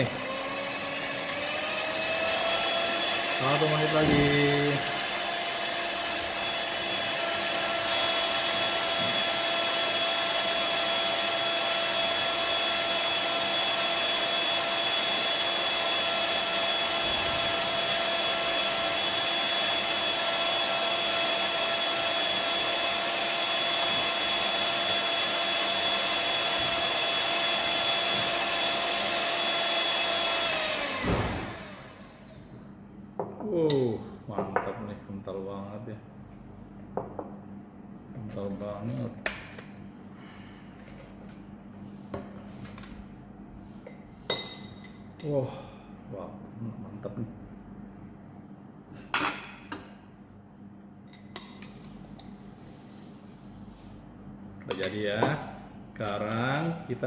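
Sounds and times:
electric hand mixer whining: 0.0s - 32.4s.

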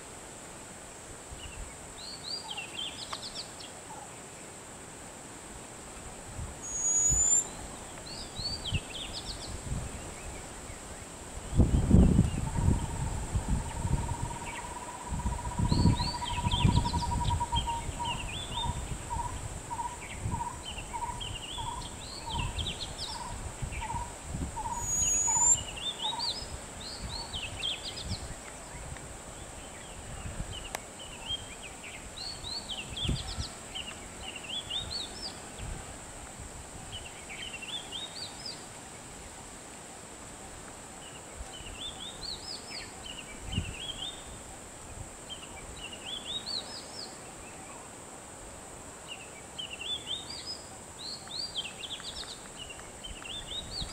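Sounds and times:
high-pitched hiss: 0.0s - 53.9s
birds singing: 6.6s - 35.8s, 49.1s - 53.9s.

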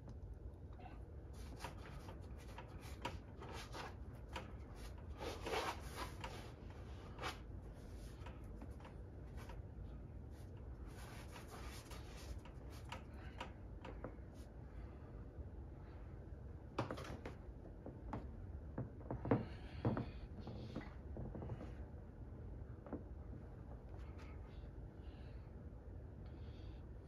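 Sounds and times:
low steady room hum: 0.0s - 27.0s
fingers swishing paint on canvas: 1.3s - 9.6s, 10.4s - 13.0s.

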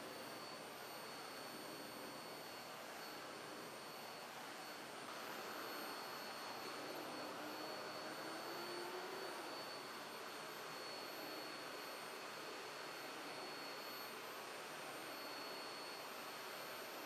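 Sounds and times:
vacuum cleaner running: 0.0s - 17.0s.

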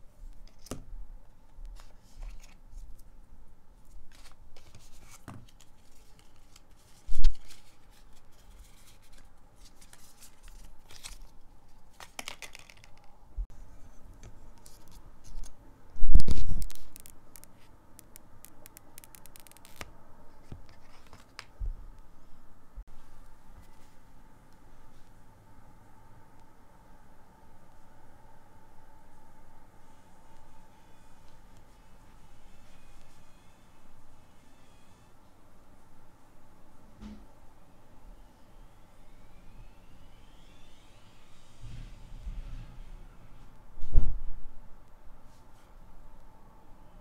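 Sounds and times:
paper and card rustling: 1.8s - 3.1s, 3.8s - 13.1s, 14.3s - 15.6s, 16.3s - 21.6s.

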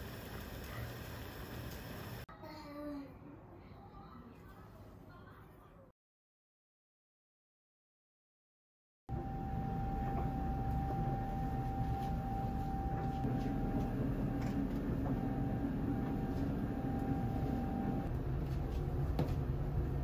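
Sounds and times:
thin high whine: 9.1s - 18.1s
low machine rumble: 9.1s - 20.0s.

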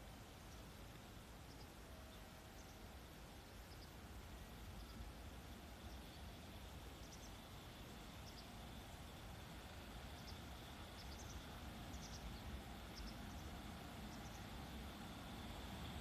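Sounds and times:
low steady rumble: 0.0s - 16.0s
faint bird chirps: 1.4s - 5.2s, 5.8s - 8.8s, 10.0s - 14.6s.

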